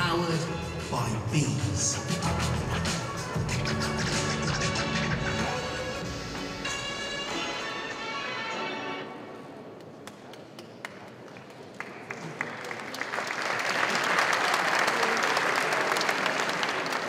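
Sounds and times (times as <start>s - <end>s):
music track: 0.0s - 9.5s
audience applause: 9.9s - 17.0s.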